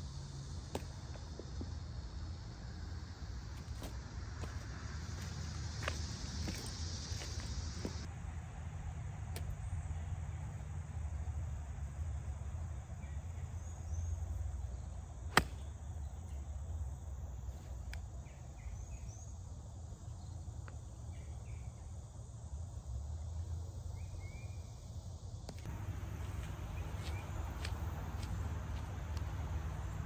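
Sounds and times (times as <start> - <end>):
steady low rumble: 25.2 - 30.0.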